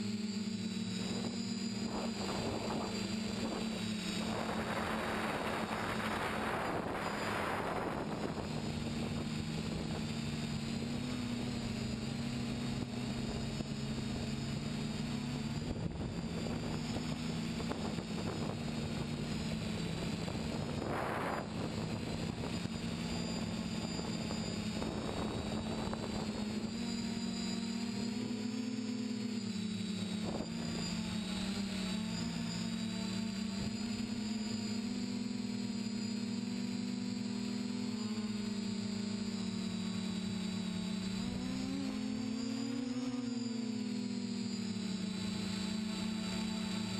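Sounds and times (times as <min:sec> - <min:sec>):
drone propellers buzzing: 0:00.0 - 0:46.9
wind hitting microphone: 0:15.7 - 0:22.7.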